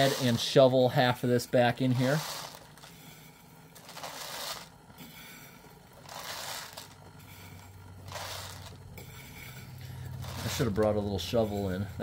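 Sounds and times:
dry pasta rattling into box: 3.8 - 4.7, 6.0 - 7.0.

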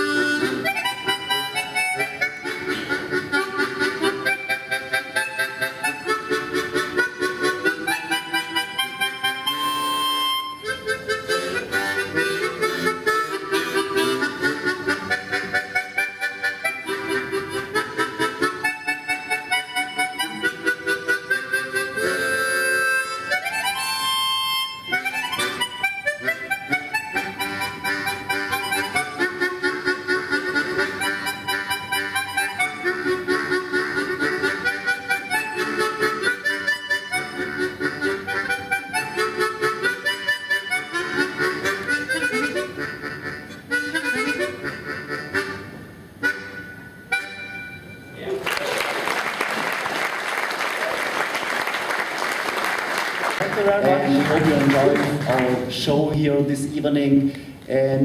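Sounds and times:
harmonica ensemble playing: 0.0 - 48.4, 53.3 - 57.6.

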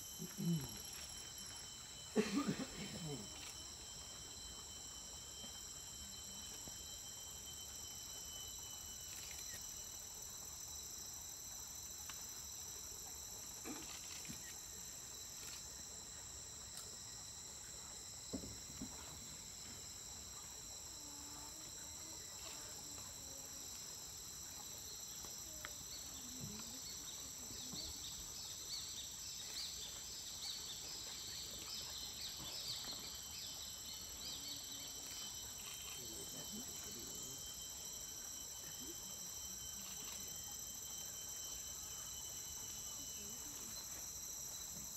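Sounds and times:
insects buzzing: 0.0 - 44.9
pulsing insect trill: 0.0 - 44.9.

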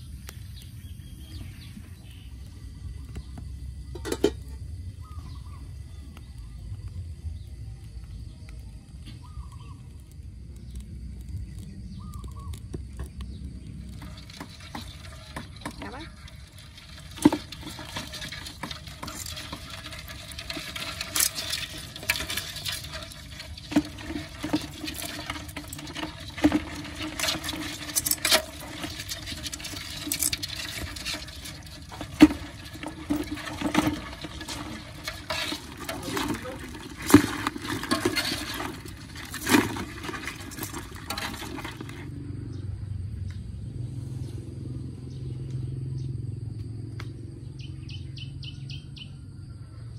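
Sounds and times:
water splashing and sloshing in bucket: 1.1 - 5.4, 11.4 - 42.1
faint chirps: 4.9 - 13.9.

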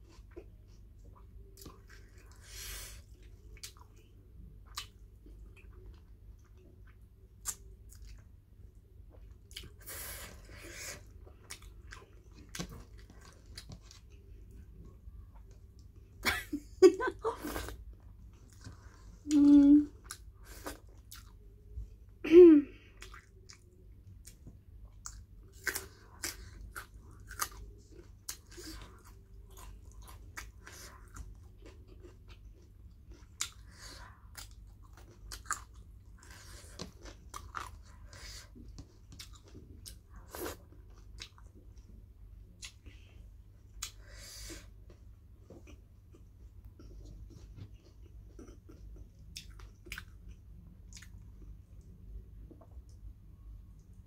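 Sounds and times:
chewing and lip smacking: 45.6 - 51.9.

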